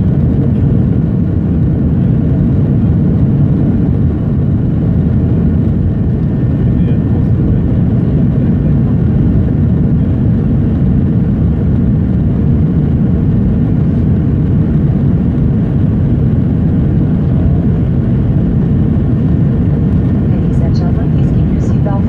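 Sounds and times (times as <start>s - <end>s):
jet airliner cabin rumble: 0.0s - 22.0s.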